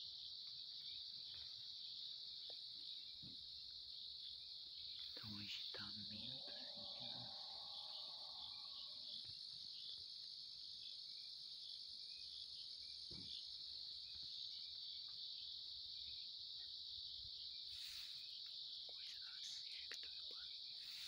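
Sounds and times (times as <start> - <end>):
crickets chirping: 0.0 - 21.0
soft knock: 13.1 - 13.4.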